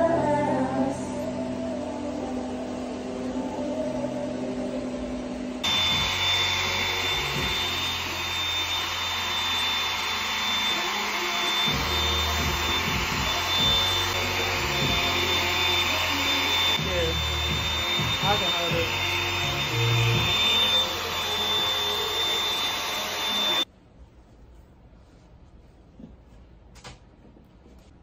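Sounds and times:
hair dryer blowing: 4.2 - 23.7.

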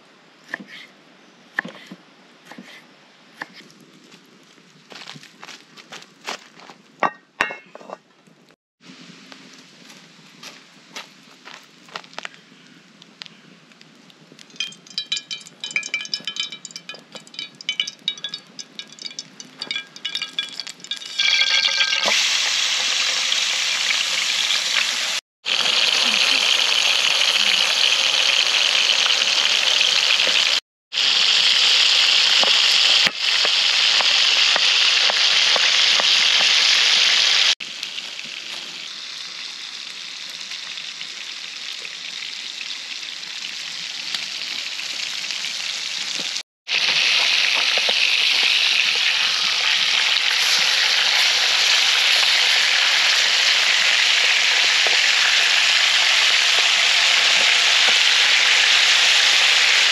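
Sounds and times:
steaks sizzling in oil: 16.8 - 59.9.

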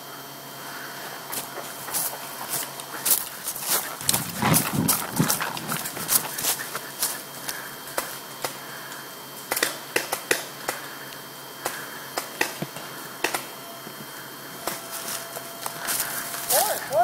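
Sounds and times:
footsteps on dry leaves and twigs: 0.6 - 8.6, 14.0 - 17.0.

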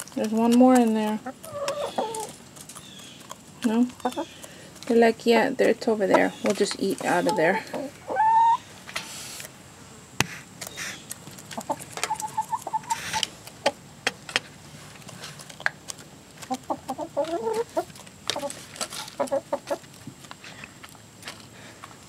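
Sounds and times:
beaks pecking metal tray: 0.0 - 7.9, 10.6 - 13.4
hens clucking: 0.0 - 9.2, 10.6 - 21.4.

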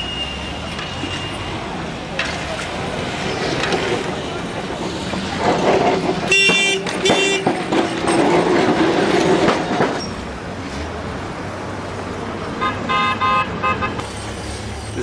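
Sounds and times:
street traffic rumble: 0.0 - 15.0
vehicle horn tooting: 6.3 - 7.4, 12.6 - 14.0.

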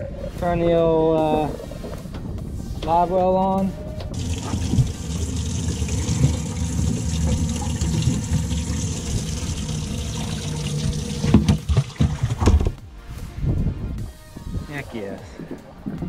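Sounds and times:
water pouring into tank: 4.2 - 12.4
knocks in water tank: 11.2 - 12.8.

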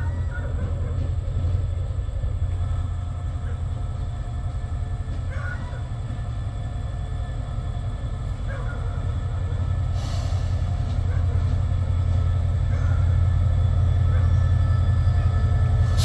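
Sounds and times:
diesel locomotive rumbling: 0.0 - 16.0.

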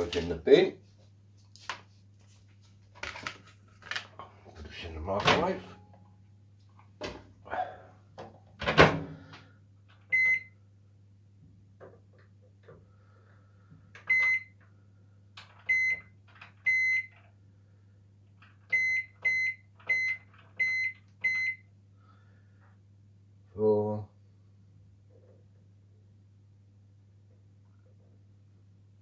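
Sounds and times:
microwave keypad beeps: 10.1 - 10.6, 14.0 - 14.6, 15.7 - 16.1, 16.7 - 17.2, 18.7 - 21.7.

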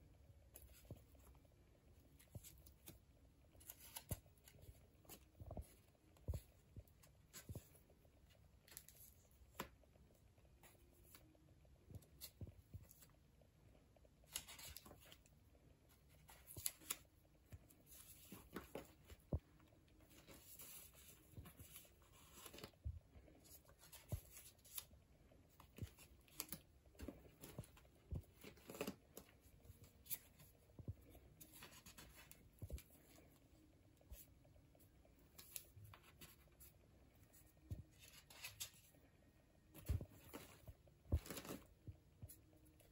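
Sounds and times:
paper pages rustling and crackling: 15.9 - 24.9, 25.5 - 33.4, 39.7 - 41.8.

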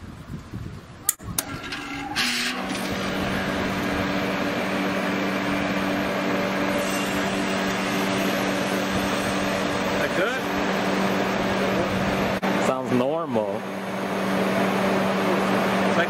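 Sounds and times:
air conditioner unit humming: 0.0 - 16.0
fan air rushing: 0.0 - 16.0.

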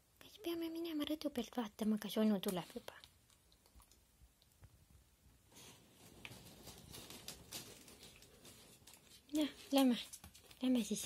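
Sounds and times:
rustling: 2.5 - 11.0.

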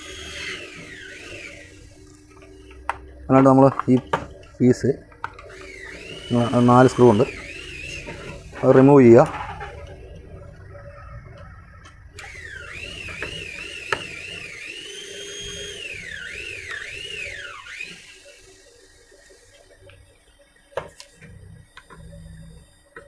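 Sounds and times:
high warbling whistle: 5.5 - 19.3.

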